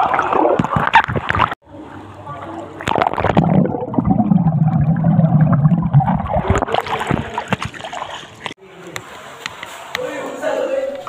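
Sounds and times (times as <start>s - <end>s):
underwater gurgling and splashing: 0.0s - 8.6s.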